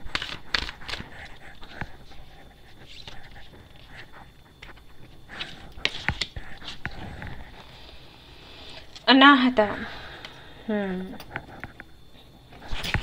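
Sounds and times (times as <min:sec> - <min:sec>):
cards being shuffled: 0:00.0 - 0:01.8, 0:05.4 - 0:07.0.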